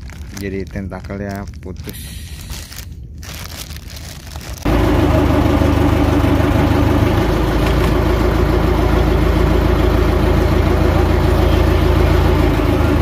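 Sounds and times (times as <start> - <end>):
boat engine idling: 4.7 - 13.0.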